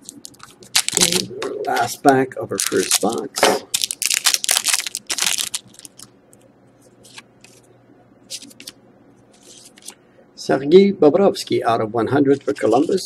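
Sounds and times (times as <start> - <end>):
foil wrapper tearing and crinkling: 0.0 - 1.3, 2.5 - 6.1
cards being handled: 2.6 - 6.1, 7.0 - 7.6, 8.3 - 10.0.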